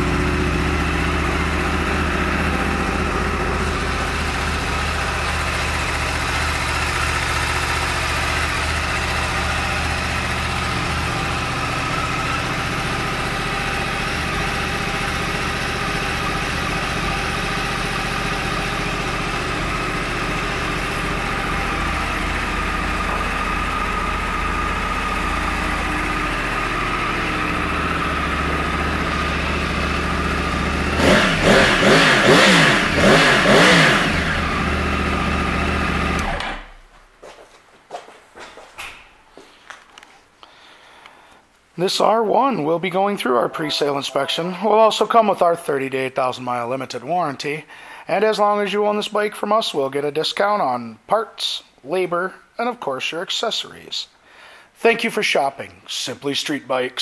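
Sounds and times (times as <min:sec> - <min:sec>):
motorcycle engine idling and revving: 0:00.0 - 0:36.7.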